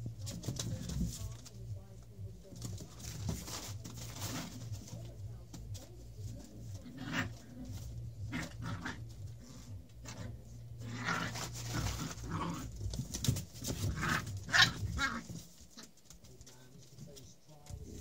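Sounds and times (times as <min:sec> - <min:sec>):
puppies making small noises: 0:00.0 - 0:18.0.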